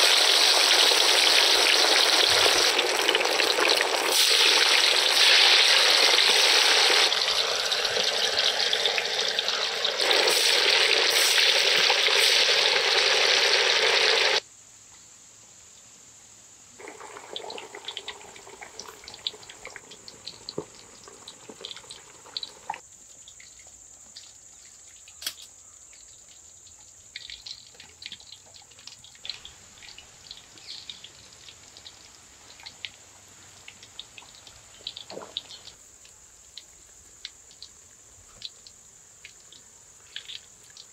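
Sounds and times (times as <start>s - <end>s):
fish sizzling in hot oil: 0.0s - 14.4s
oil crackling and popping: 0.0s - 14.4s, 16.8s - 22.8s.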